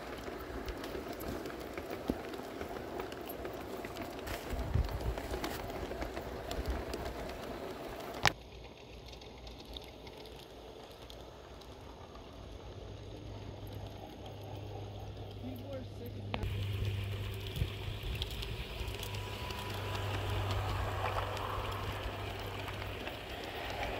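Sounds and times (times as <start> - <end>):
model train wheels clattering: 0.0 - 11.4
low hum: 0.0 - 23.9.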